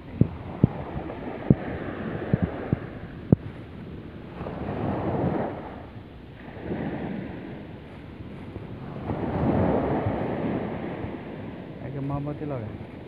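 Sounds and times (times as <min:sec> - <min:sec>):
sea waves washing up a beach: 0:00.0 - 0:13.0
wind on the microphone: 0:00.0 - 0:13.0.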